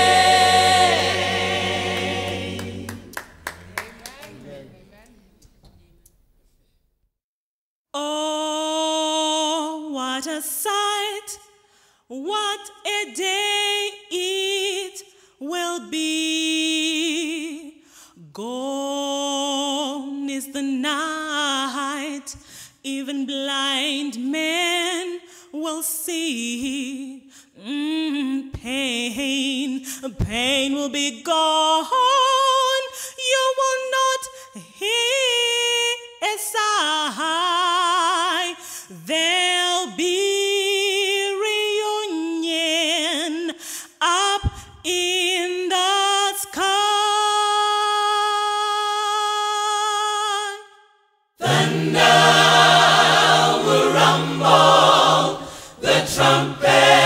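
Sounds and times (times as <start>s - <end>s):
woman singing unaccompanied: 22.9s - 50.6s.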